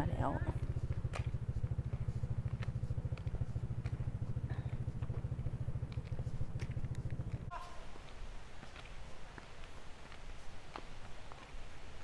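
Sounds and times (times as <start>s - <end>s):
engine chugging steadily: 0.0s - 7.5s.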